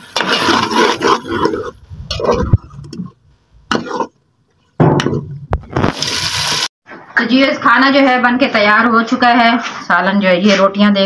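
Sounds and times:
ladle scraping a metal pot: 0.0s - 2.5s.

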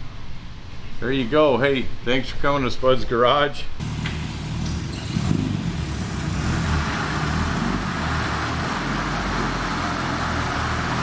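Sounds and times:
small car engine running: 3.8s - 11.0s.

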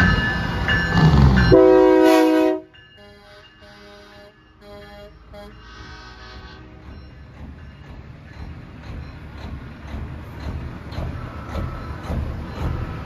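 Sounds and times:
multi-note truck horn: 1.5s - 6.8s
diesel truck engine rumble: 4.6s - 13.0s.

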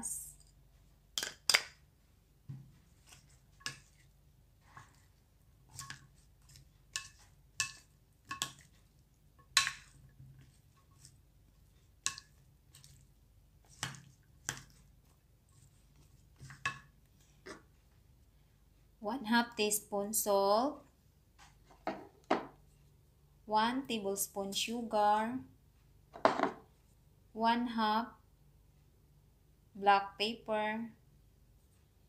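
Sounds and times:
spoon clicking and scraping bowl: 3.0s - 17.7s.

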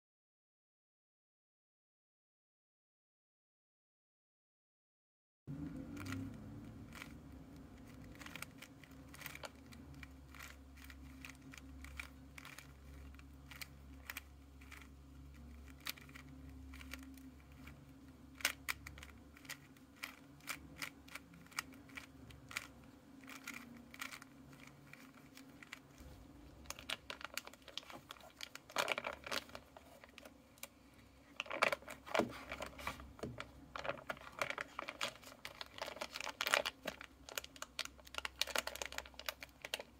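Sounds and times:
plastic cube clicking: 7.8s - 25.9s
plastic wrapping crinkling: 21.5s - 30.7s, 31.3s - 39.9s.

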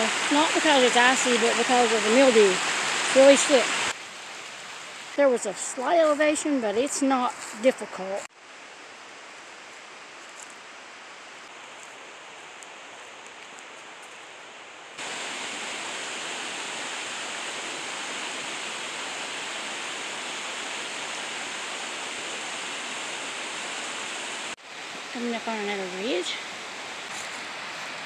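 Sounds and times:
creek rushing over rocks: 0.0s - 8.3s, 15.0s - 28.0s.

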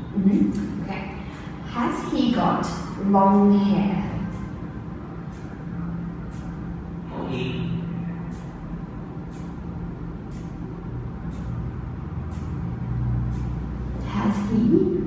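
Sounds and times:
low background rumble: 0.0s - 15.0s.

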